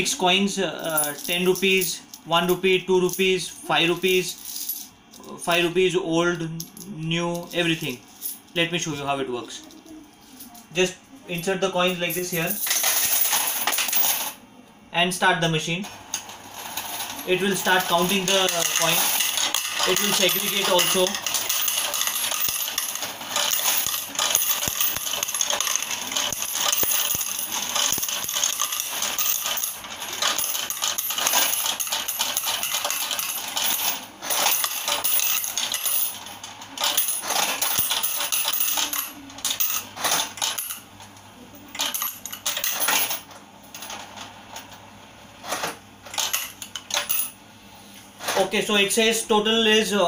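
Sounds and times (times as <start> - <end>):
coin counting machine clatter: 0.8 - 5.7, 11.8 - 14.4, 15.9 - 41.0, 41.6 - 44.7, 45.4 - 47.4.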